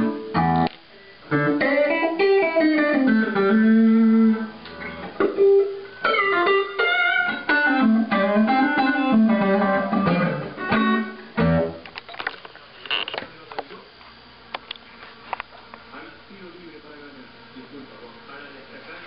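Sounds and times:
electric guitar notes: 0.0 - 12.4.

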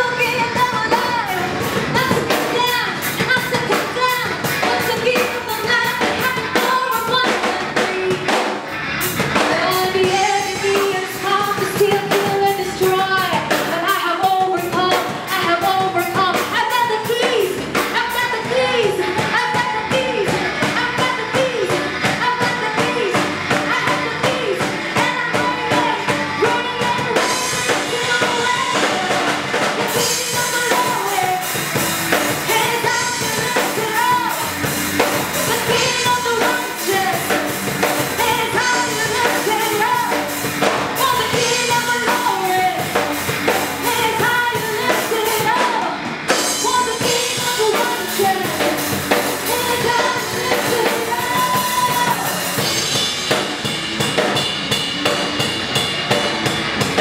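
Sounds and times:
drum kit: 0.0 - 57.0
women singing together: 14.0 - 31.6, 32.2 - 52.8.

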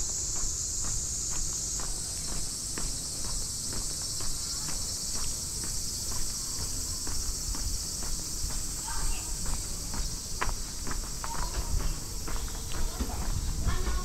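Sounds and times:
footsteps: 0.0 - 14.0
insects chorus: 0.0 - 14.0.

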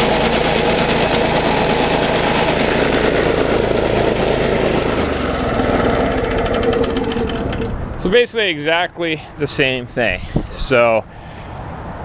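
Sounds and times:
lawn mower engine running: 0.0 - 8.0.

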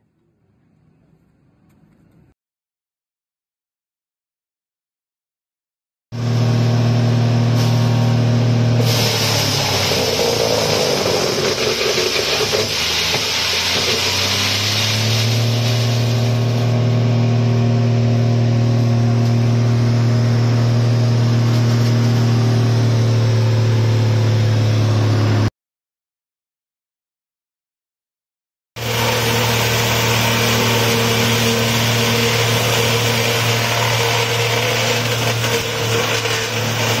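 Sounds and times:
wood being ground harshly: 8.8 - 16.8, 28.8 - 37.0
electric motor humming: 28.8 - 37.0.

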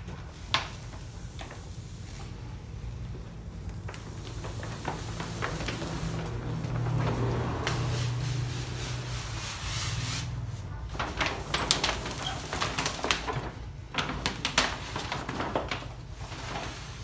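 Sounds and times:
vinyl film crinkling: 0.0 - 8.0, 10.7 - 17.0
hand pump sprayer hiss: 3.8 - 6.7, 7.6 - 10.3.

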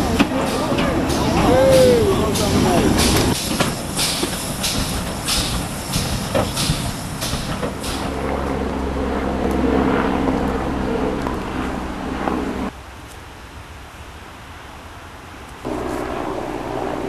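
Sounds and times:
steam locomotive chuffing: 0.0 - 9.3
steady low hum: 0.0 - 12.7, 15.7 - 17.0.

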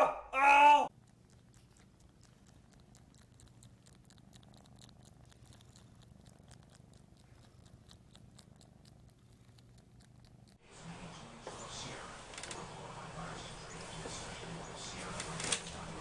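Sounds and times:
soft wet suckling clicks: 0.9 - 10.6
kitten purring: 0.9 - 16.0.

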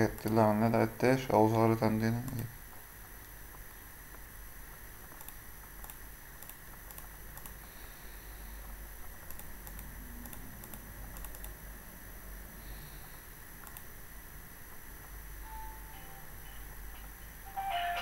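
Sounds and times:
steady low hum and hiss: 0.0 - 18.0
computer mouse clicks: 5.1 - 7.6, 9.0 - 11.6, 13.0 - 13.9.

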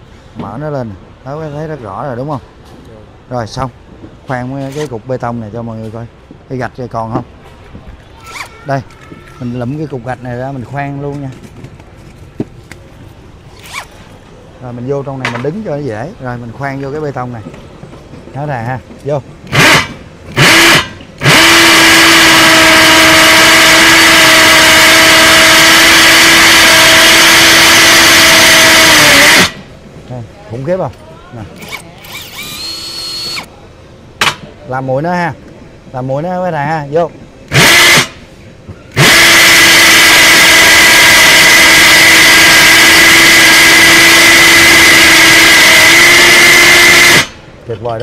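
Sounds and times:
hammer drill boring into concrete: 19.5 - 29.6, 31.6 - 33.5, 37.5 - 38.2, 39.0 - 47.4.

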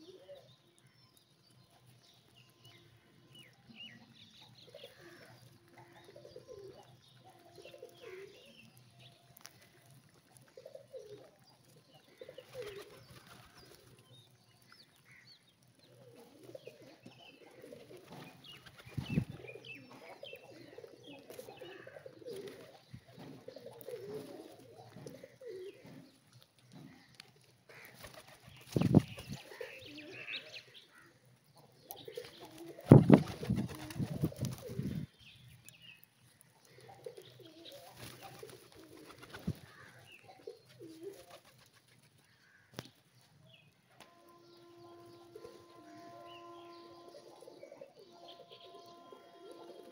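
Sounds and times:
pigeons cooing: 0.0 - 0.5, 4.6 - 8.5, 9.5 - 14.0, 15.9 - 26.1, 27.7 - 30.5, 31.8 - 35.1, 36.6 - 41.6, 47.0 - 49.9
wings flapping: 27.9 - 29.5, 32.4 - 35.0, 37.8 - 40.0.

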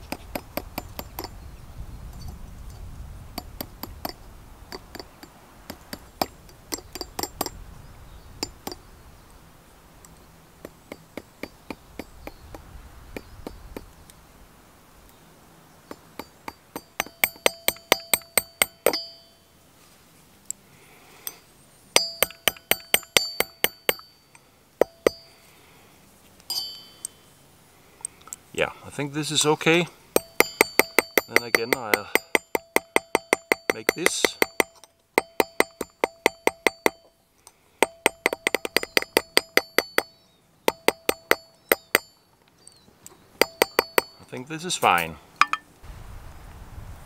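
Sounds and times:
hammer tapping copper: 3.4 - 7.6, 10.6 - 12.6, 15.9 - 19.3, 22.0 - 24.2, 24.8 - 25.3, 26.5 - 27.2, 30.1 - 37.1, 37.8 - 42.2, 43.4 - 45.7.

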